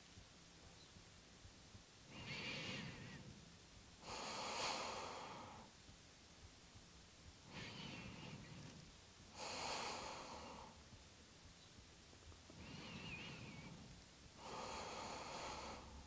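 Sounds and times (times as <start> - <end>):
person breathing slowly: 2.1 - 5.8, 7.4 - 10.9, 12.5 - 16.0.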